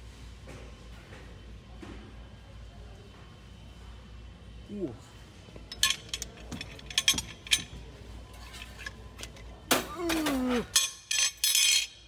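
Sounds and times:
steel wrenches clinking: 0:05.7 - 0:07.8, 0:10.1 - 0:12.0.

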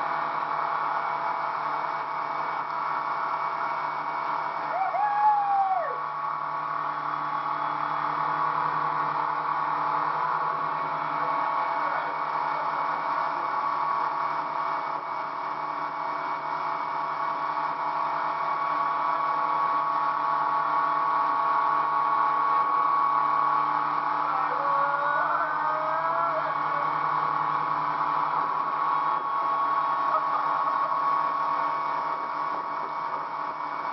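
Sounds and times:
motorboat engine droning: 0:05.6 - 0:33.9.

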